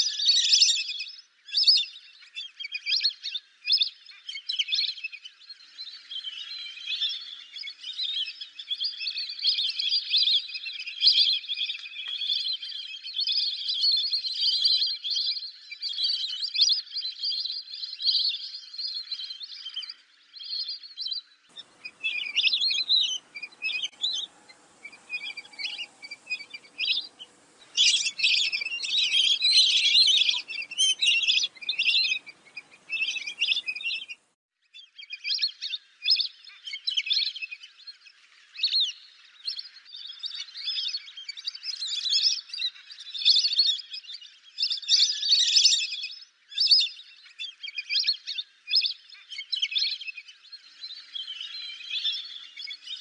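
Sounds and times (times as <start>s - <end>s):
ducks whistling: 21.5s - 34.2s.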